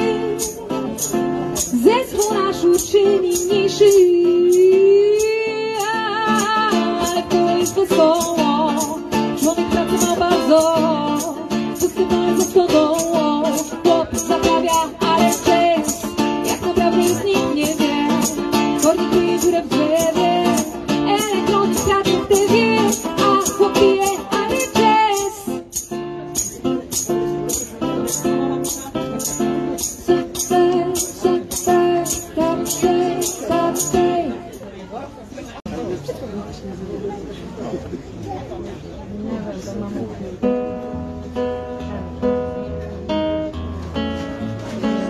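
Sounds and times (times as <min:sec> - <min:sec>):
woman singing into microphone: 0:00.0 - 0:25.8, 0:29.8 - 0:34.6
strummed guitar: 0:00.0 - 0:34.6, 0:40.4 - 0:45.0.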